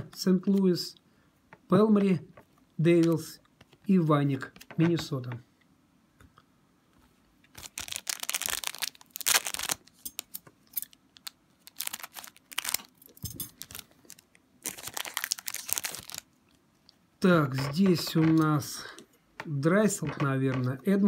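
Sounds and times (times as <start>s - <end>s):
foil wrapper crinkling: 7.5s - 16.3s
foil wrapper tearing: 7.6s - 16.3s.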